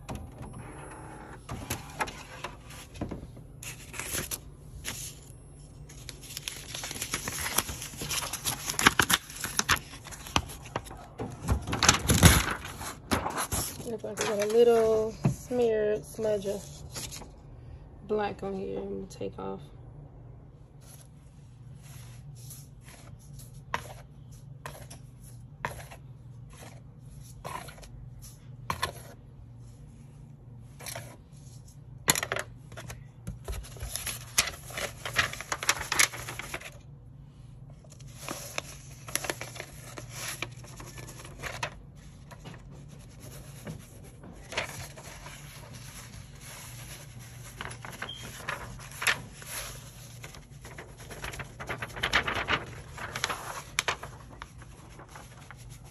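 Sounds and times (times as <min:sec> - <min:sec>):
low steady hum: 0:00.0 - 0:55.9
plastic film crinkling and tapping: 0:50.4 - 0:55.7.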